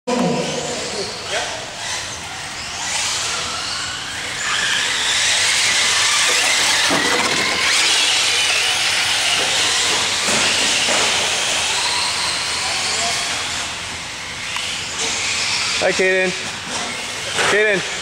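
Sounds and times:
electric motor and gear whine: 0:00.1 - 0:18.0.

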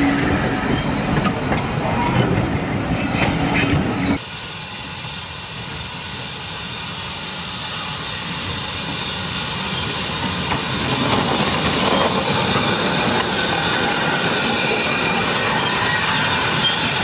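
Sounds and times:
steam train wheels clattering: 0:08.1 - 0:17.0.

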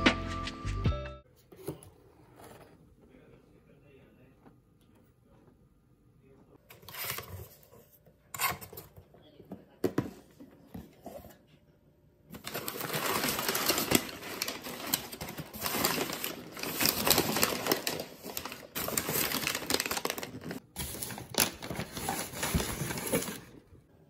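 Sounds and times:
packing paper rustling and crackling: 0:12.3 - 0:23.6.

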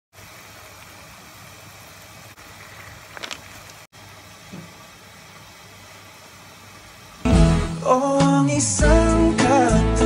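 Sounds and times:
water boiling in a pot: 0:00.1 - 0:07.3.

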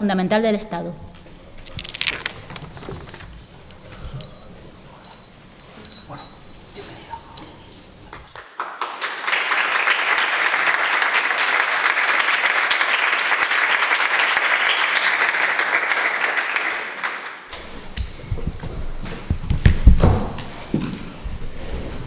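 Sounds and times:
small group applauding: 0:08.0 - 0:17.7.

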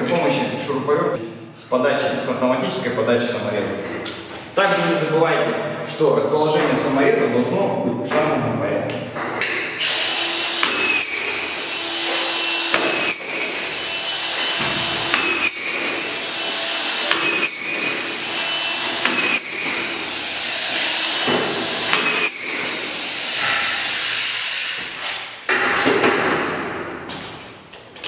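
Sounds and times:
screw gun running: 0:09.8 - 0:21.2.

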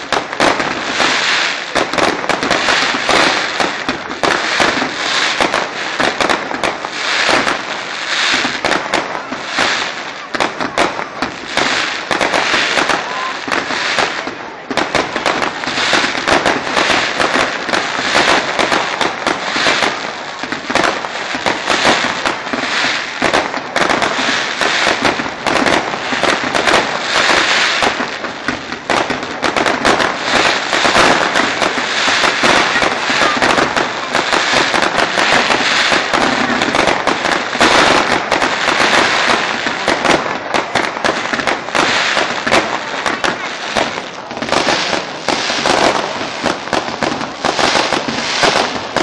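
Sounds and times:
fireworks crackling and banging: 0:00.0 - 0:49.0.

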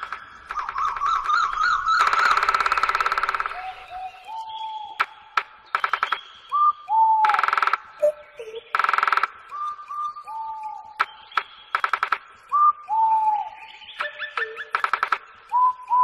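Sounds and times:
bird buzzy rattles: 0:00.0 - 0:03.6
bird whistles: 0:00.5 - 0:02.4, 0:03.5 - 0:11.9, 0:12.5 - 0:16.0.

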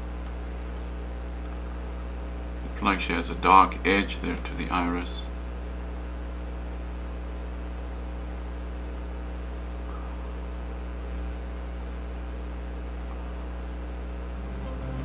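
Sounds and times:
electrical mains hum: 0:00.0 - 0:15.0
background hiss: 0:14.2 - 0:15.0.

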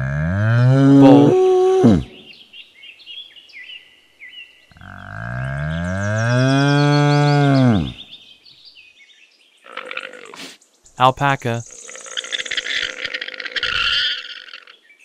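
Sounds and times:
bull bellowing: 0:00.0 - 0:02.2, 0:04.8 - 0:08.0, 0:11.8 - 0:14.8.

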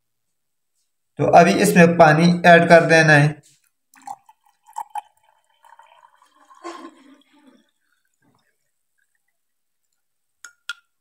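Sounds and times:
water pouring into a glass: 0:03.9 - 0:10.1.

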